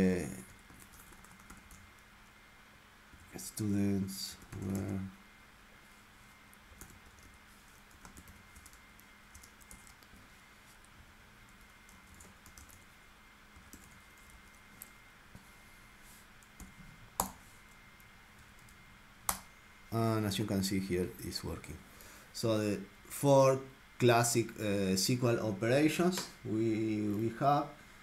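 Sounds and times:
computer keyboard typing: 0.7s - 2.0s, 4.4s - 5.0s, 6.8s - 10.1s, 11.8s - 12.9s, 13.6s - 14.9s.

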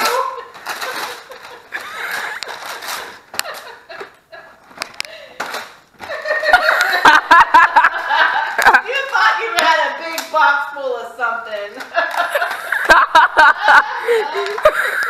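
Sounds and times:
paper rustling and tearing: 0.0s - 3.8s
loud laughter: 0.0s - 4.6s, 6.1s - 8.8s, 12.0s - 15.0s.

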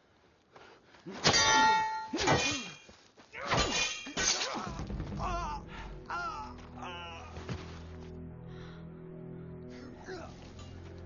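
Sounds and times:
swords clanging: 1.2s - 2.8s, 3.5s - 4.7s.

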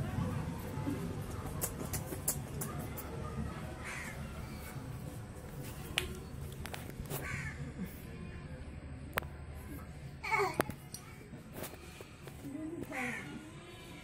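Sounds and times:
crow cawing: 3.8s - 4.2s, 7.2s - 7.6s.

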